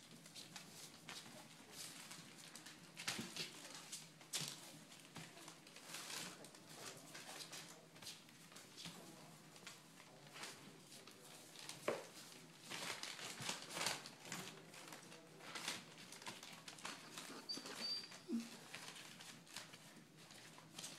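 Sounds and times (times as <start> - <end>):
patter of small paws: 0.0 - 20.9
rustling and crinkling paper: 0.0 - 20.9
puppy squeaks: 17.1 - 18.6.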